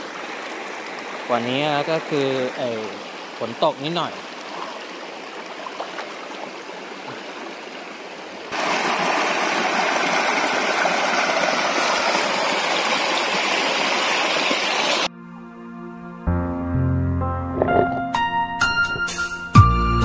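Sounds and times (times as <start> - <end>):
loud rush of water: 0.0 - 15.1
stream running over stones: 0.0 - 15.1.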